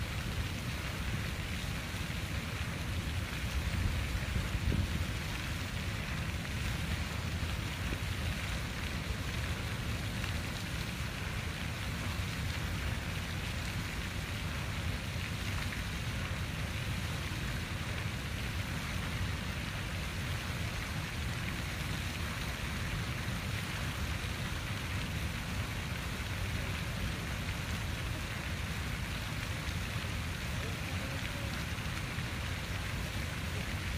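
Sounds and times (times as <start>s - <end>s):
fountain water splashing: 0.0s - 33.9s.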